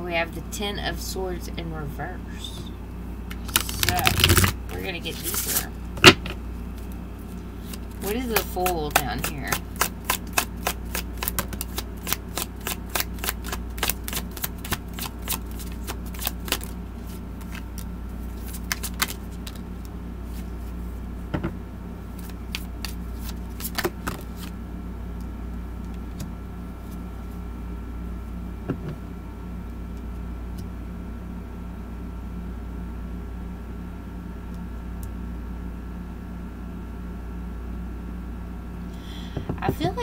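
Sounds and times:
steady low hum: 0.0s - 40.0s
cards being shuffled: 3.3s - 20.8s, 22.1s - 24.6s
cards flicked and laid down: 18.5s - 19.6s, 22.2s - 24.5s.

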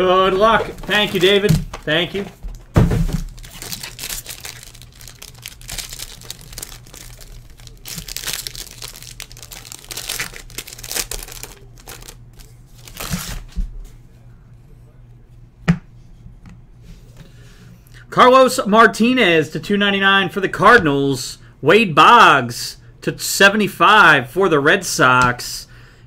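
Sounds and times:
foil wrapper crinkling and tearing: 3.1s - 13.6s.

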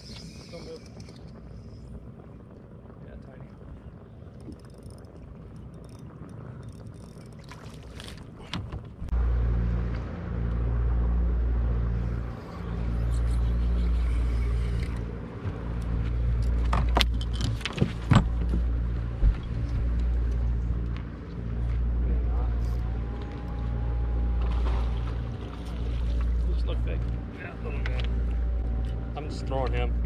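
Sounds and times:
low motor hum: 0.0s - 30.0s
sharp knocks and clicks on boat: 16.4s - 19.7s.

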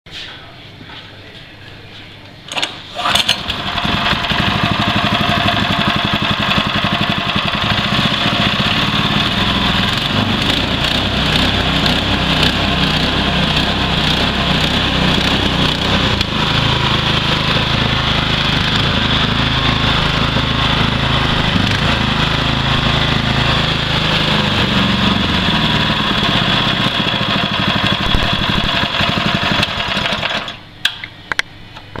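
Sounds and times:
small engine running: 3.0s - 30.6s.

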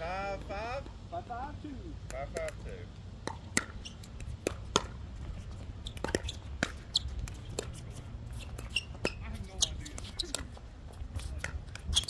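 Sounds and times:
ball bouncing on hard court: 2.1s - 10.6s
sneaker squeaks: 3.6s - 4.2s, 5.2s - 12.0s.

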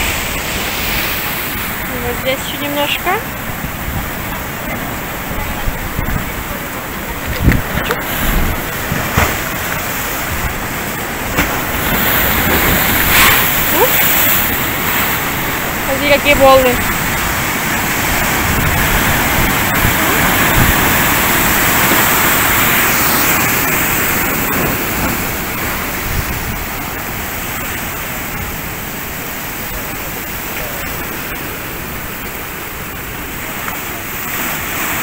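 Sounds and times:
waves breaking over rocks: 0.0s - 35.0s.

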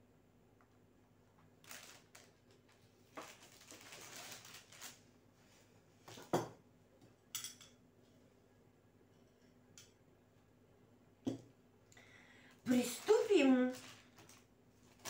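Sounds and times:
cutlery scraping: 7.3s - 7.8s
dishes clinking: 7.3s - 7.8s.

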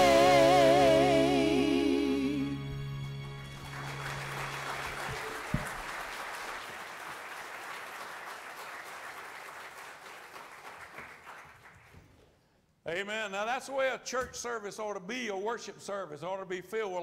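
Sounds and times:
congregation applauding: 2.8s - 12.1s.

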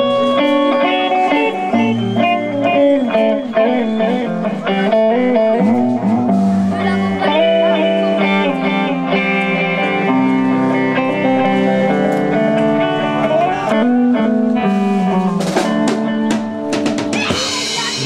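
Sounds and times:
electric guitar ringing chords: 0.0s - 18.0s
drum hits: 15.2s - 18.0s.

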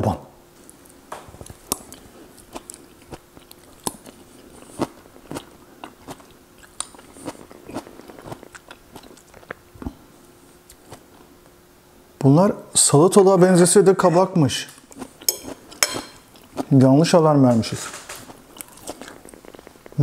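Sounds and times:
chewing vegetables: 0.6s - 10.0s, 14.7s - 16.8s, 17.9s - 20.0s.

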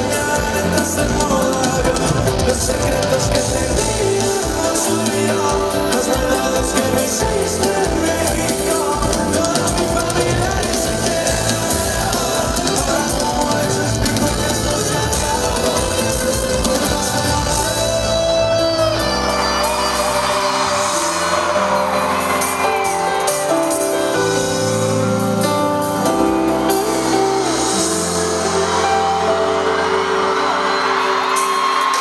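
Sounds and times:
man singing: 0.0s - 22.3s
drums: 0.0s - 32.0s
live pop band: 0.0s - 32.0s
crowd shouts and whoops: 19.0s - 24.4s, 28.1s - 32.0s.

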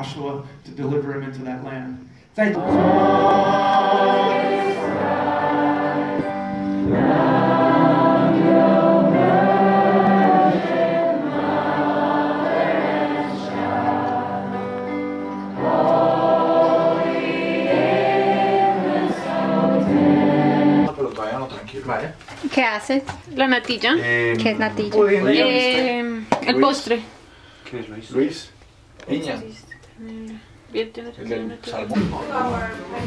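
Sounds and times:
choir singing a hymn: 2.6s - 20.9s.

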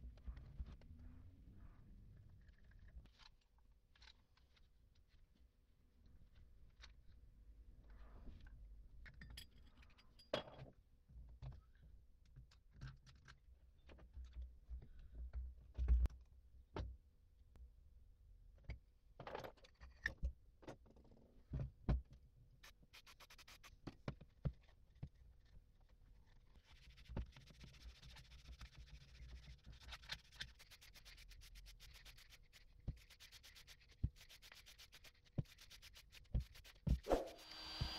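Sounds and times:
metal parts clinking and knocking: 9.0s - 10.8s
rapid rubbing of metal: 22.6s - 23.8s, 26.5s - 37.9s.

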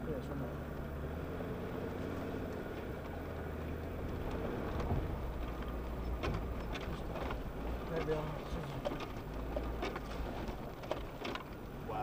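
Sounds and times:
sharp clicks and knocks: 4.1s - 11.6s.

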